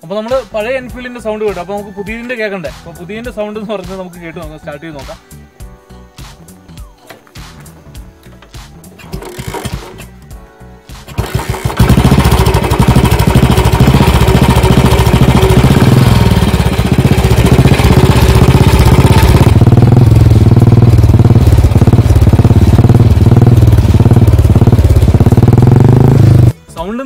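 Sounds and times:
motorcycle engine thumping idle: 0:07.1 - 0:10.1, 0:11.0 - 0:26.5
motorcycle kick-started: 0:08.2 - 0:10.2, 0:11.0 - 0:26.6.

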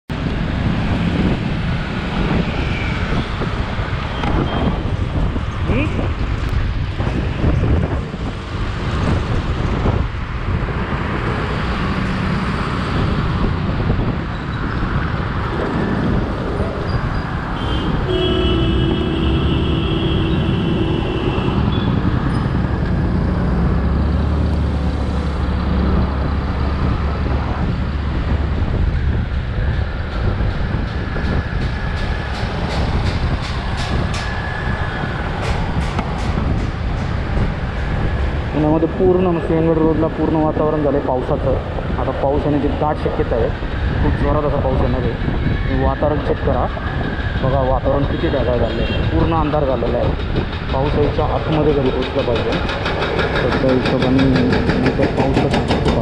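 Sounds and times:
road and traffic noise: 0:00.1 - 0:56.0
wind rushing over microphone: 0:00.1 - 0:56.0
vehicle horn: 0:17.6 - 0:22.0.

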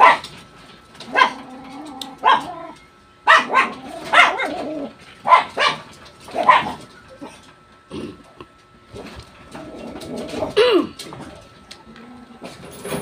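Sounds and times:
dog barking: 0:00.0 - 0:00.3, 0:01.1 - 0:01.4, 0:02.2 - 0:02.6, 0:03.2 - 0:04.6, 0:05.2 - 0:06.8.

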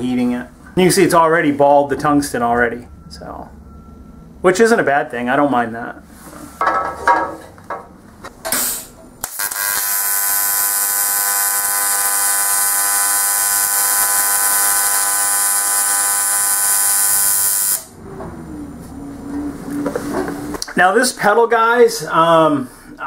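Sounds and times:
welding arc buzzing: 0:08.5 - 0:18.0.

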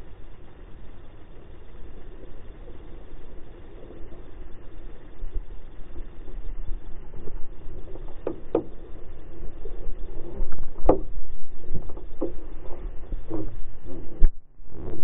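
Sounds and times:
water rumbling against boat hull: 0:06.0 - 0:15.0
dull knocks on hull: 0:08.1 - 0:08.8, 0:10.7 - 0:11.1, 0:11.8 - 0:12.4.

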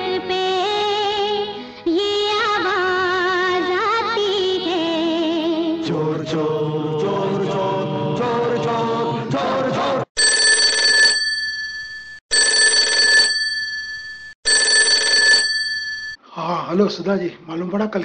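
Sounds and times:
film song music: 0:05.8 - 0:10.0
telephone ringing: 0:10.2 - 0:16.2.

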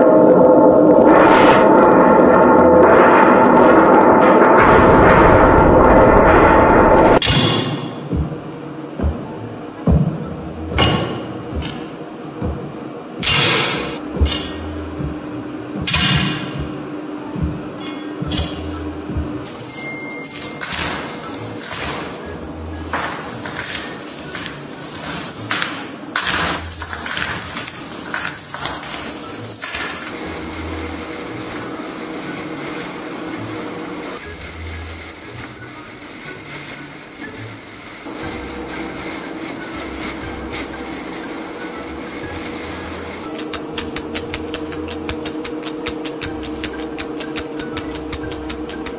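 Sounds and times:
rope sliding through gloved hands: 0:31.1 - 0:48.9
hand brushing through grass: 0:34.3 - 0:43.2.

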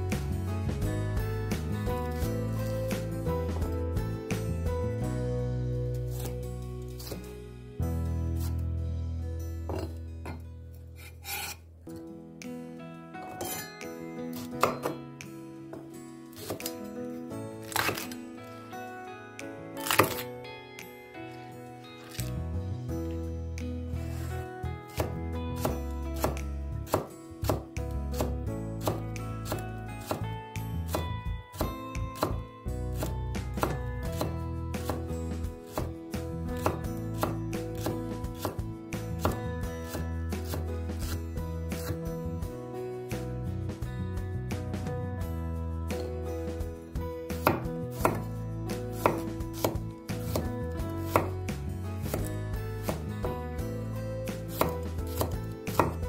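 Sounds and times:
background music: 0:00.0 - 0:56.0
knife chopping on wooden board: 0:07.0 - 0:07.2, 0:09.7 - 0:10.4, 0:11.0 - 0:11.6, 0:14.3 - 0:15.0, 0:16.4 - 0:16.8, 0:17.6 - 0:18.1, 0:19.8 - 0:20.3, 0:24.9 - 0:30.2, 0:30.9 - 0:32.4, 0:33.0 - 0:36.0, 0:36.6 - 0:41.2, 0:41.8 - 0:42.0, 0:47.3 - 0:48.3, 0:48.9 - 0:51.4, 0:52.1 - 0:53.4, 0:54.3 - 0:56.0.

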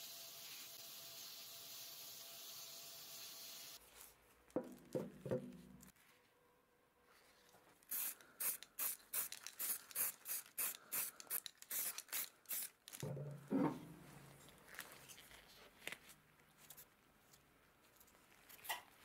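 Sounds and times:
spray paint hissing bursts: 0:07.9 - 0:12.8.

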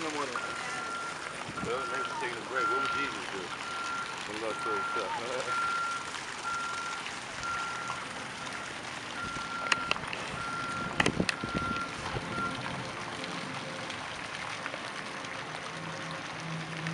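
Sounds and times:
outdoor background noise: 0:00.0 - 0:16.9
reversing alarm beeping: 0:00.3 - 0:12.7.

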